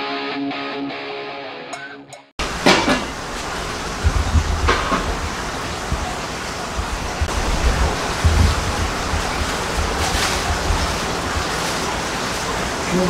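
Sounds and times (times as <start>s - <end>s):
low rumbling thumps: 3.1s - 12.1s
plastic bag rustling: 7.2s - 13.0s.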